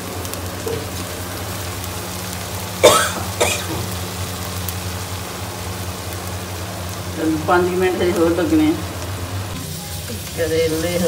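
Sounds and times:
food sizzling in pan: 0:00.0 - 0:11.0
steady hum: 0:00.0 - 0:11.0
person coughing: 0:02.8 - 0:03.9.

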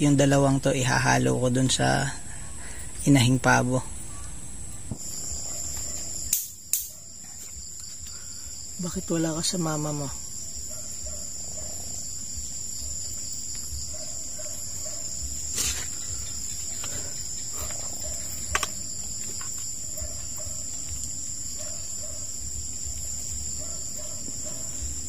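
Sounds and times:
crickets trilling: 0:00.0 - 0:25.0
sharp clicks: 0:06.3 - 0:06.9.

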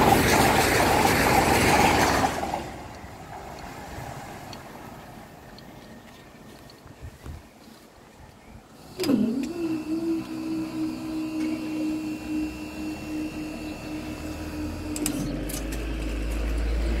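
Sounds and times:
barrier mechanism whine and hum: 0:08.8 - 0:17.0.

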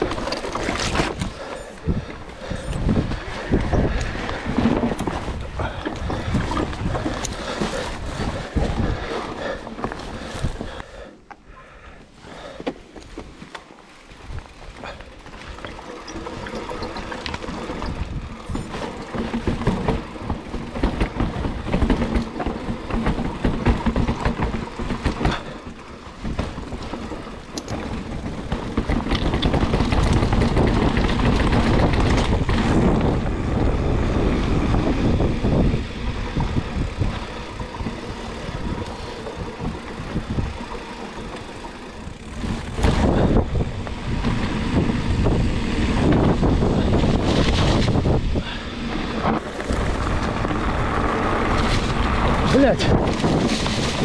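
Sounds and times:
bike tyres and frame rattling: 0:00.0 - 0:54.0
wind on microphone: 0:00.8 - 0:09.1, 0:28.4 - 0:40.7, 0:42.0 - 0:54.0
knocks over bumps: 0:14.8 - 0:33.3.

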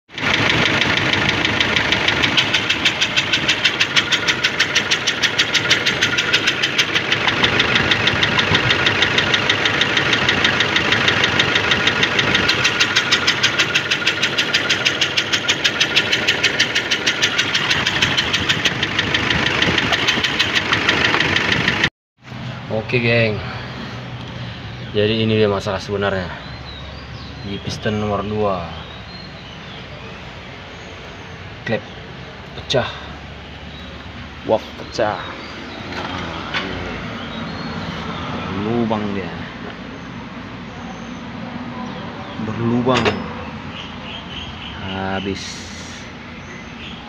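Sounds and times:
diesel engine idling with knock: 0:00.1 - 0:21.9, 0:42.6 - 0:44.7.

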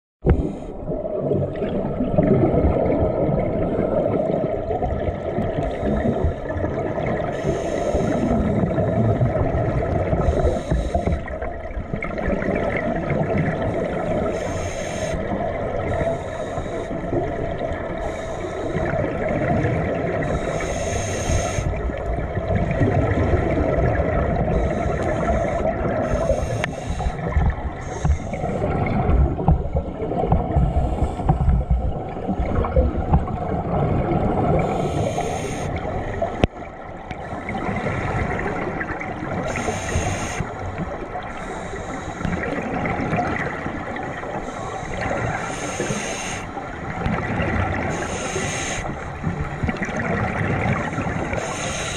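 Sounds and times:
gurgling exhaled bubbles: 0:00.2 - 0:51.9
regulator inhalation hiss: 0:07.3 - 0:08.5, 0:10.2 - 0:11.4, 0:14.3 - 0:17.2, 0:18.0 - 0:18.9, 0:20.2 - 0:21.8, 0:24.5 - 0:28.6, 0:34.6 - 0:35.8, 0:39.4 - 0:42.4, 0:44.4 - 0:46.6, 0:47.9 - 0:49.1, 0:51.3 - 0:51.9.

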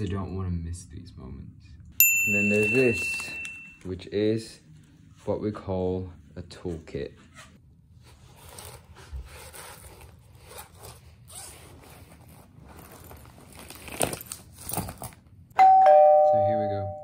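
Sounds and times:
zipper being worked: 0:07.3 - 0:15.2
pouch rustling and scraping: 0:07.3 - 0:15.3.

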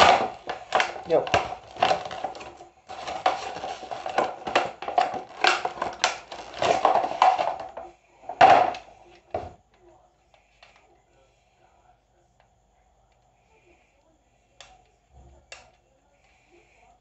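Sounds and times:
packaging crinkling and rustling: 0:00.0 - 0:08.9.

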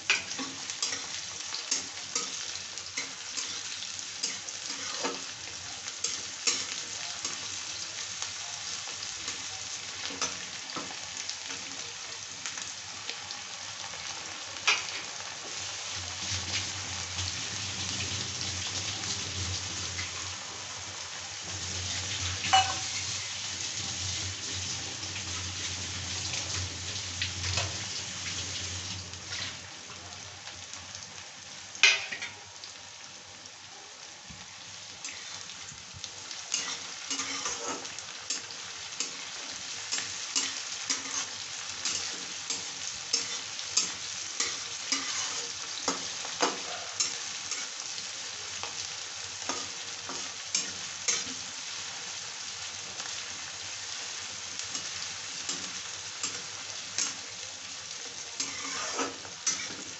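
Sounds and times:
oil sizzling: 0:00.0 - 0:59.9
spatula clattering and scraping: 0:58.4 - 0:59.8.

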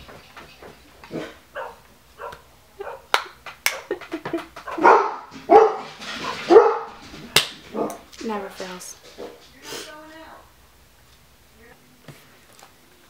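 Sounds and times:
dog barking: 0:01.1 - 0:03.1, 0:04.6 - 0:07.0, 0:07.7 - 0:08.0.

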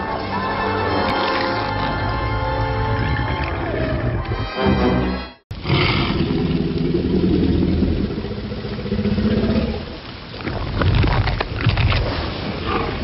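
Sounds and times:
heavy rain: 0:05.5 - 0:13.0
low rumbling growl: 0:05.6 - 0:10.0.

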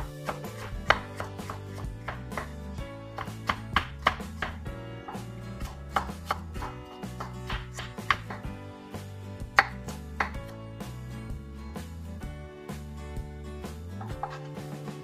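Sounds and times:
knife chopping on wooden board: 0:00.0 - 0:08.6, 0:09.5 - 0:10.5, 0:14.0 - 0:14.6
background music: 0:00.0 - 0:15.0.

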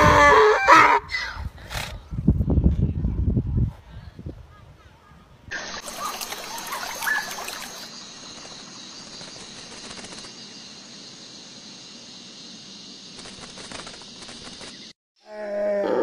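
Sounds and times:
outdoor background hiss: 0:04.2 - 0:14.9
bird chirps: 0:05.8 - 0:09.5.

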